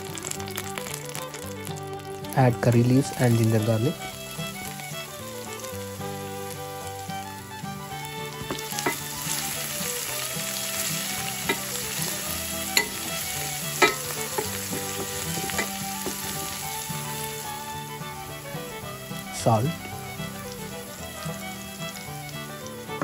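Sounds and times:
food sizzling in hot oil: 0.0s - 23.0s
spatula knocking against pan: 8.4s - 9.4s, 12.8s - 16.4s.

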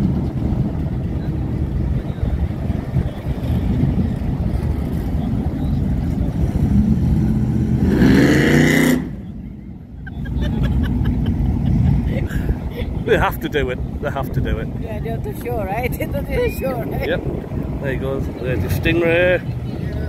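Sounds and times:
vehicle engines idling: 0.0s - 20.0s
engine revving: 3.0s - 9.4s.

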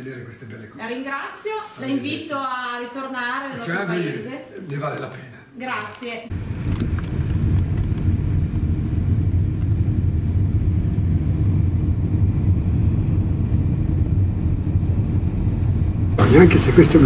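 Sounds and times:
car engine rumble: 6.3s - 17.0s.

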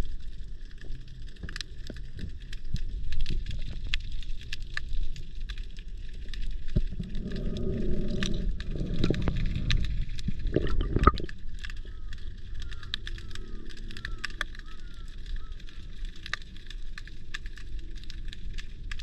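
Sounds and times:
water swishing past camera: 6.7s - 11.9s.

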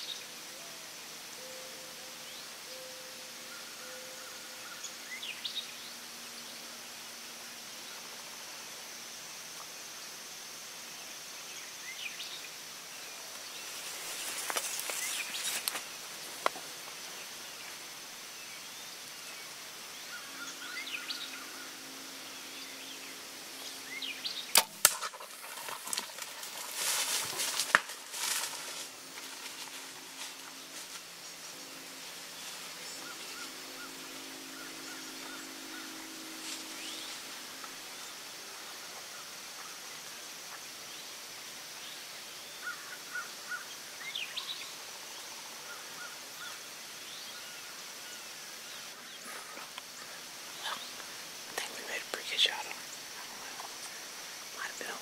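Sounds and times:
insect drone: 0.0s - 55.0s
bow release snap: 24.5s - 25.2s
arrow hitting: 24.5s - 25.3s
deer crashing through brush: 24.6s - 30.4s
faint bird chirps: 41.8s - 55.0s.

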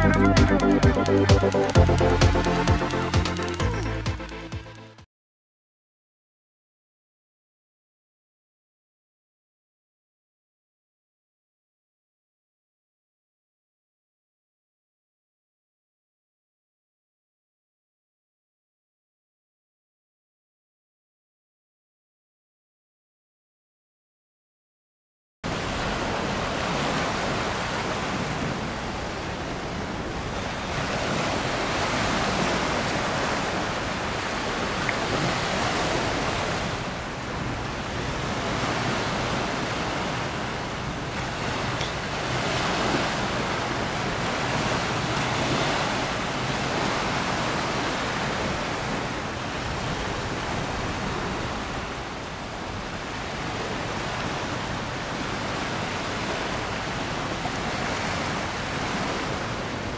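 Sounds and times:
river water rushing: 25.5s - 59.9s
wind on microphone: 25.5s - 59.9s.

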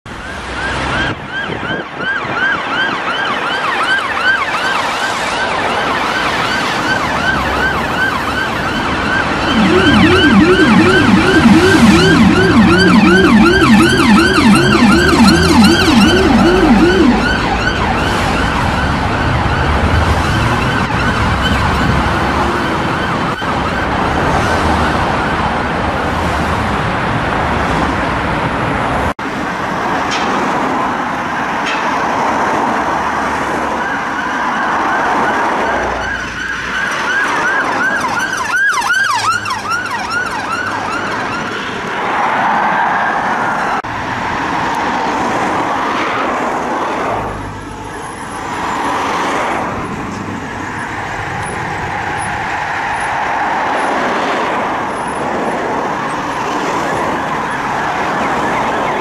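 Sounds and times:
low rumbler siren tone: 0.1s - 21.7s
siren wailing: 0.2s - 25.6s, 33.4s - 42.0s, 55.9s - 59.0s
siren yelping: 0.6s - 23.9s, 33.4s - 41.6s, 55.9s - 59.0s.

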